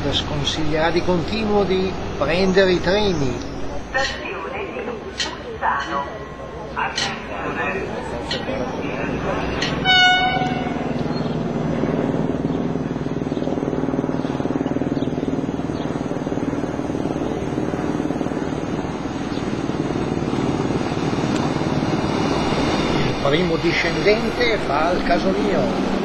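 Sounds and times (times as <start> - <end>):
train diesel engine droning: 0.0 - 26.0
train horn note: 9.8 - 11.0.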